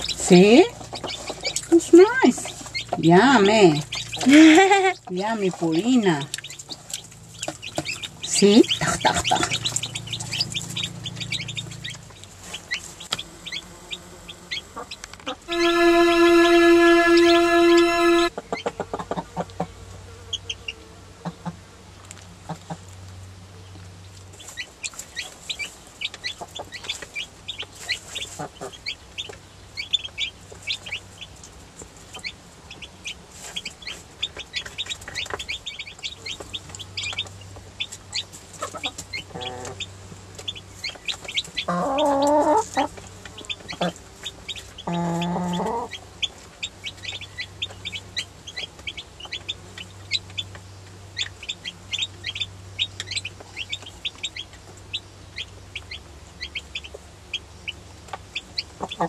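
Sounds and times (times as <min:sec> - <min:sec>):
baby chicks peeping: 0:00.0 - 0:59.0
louder lower calls: 0:15.5 - 0:18.3.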